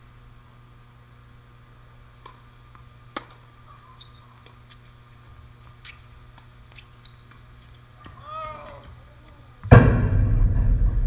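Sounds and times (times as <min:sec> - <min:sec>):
tennis ball bouncing: 0:02.2 - 0:04.9
racket striking tennis ball: 0:03.1 - 0:04.0.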